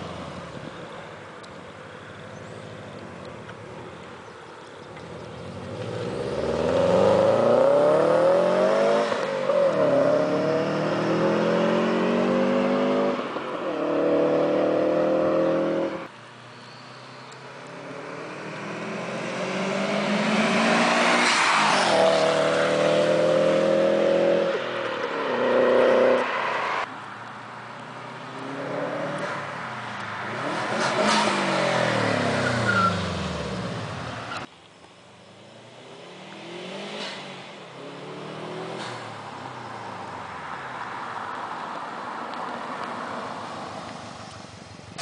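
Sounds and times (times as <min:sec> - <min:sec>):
car accelerating past: 0:05.0 - 0:16.1, 0:16.9 - 0:26.9.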